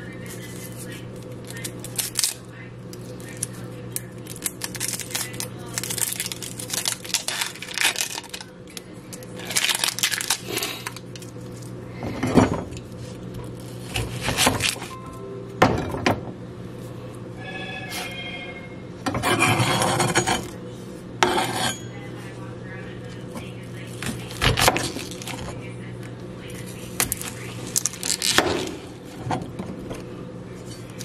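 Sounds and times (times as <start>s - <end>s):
low steady hum: 0.0s - 31.0s
onion skin crackling: 0.6s - 11.8s, 27.0s - 28.7s.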